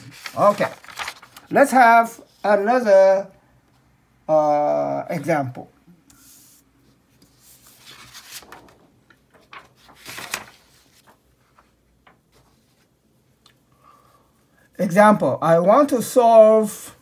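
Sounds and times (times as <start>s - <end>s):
paper rustling on table: 0.0s - 1.8s, 6.1s - 12.9s.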